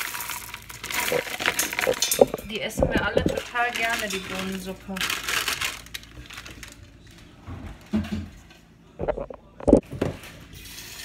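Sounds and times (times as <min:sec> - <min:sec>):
kitchen knocks and clatters: 0:01.0 - 0:04.8, 0:07.4 - 0:10.5.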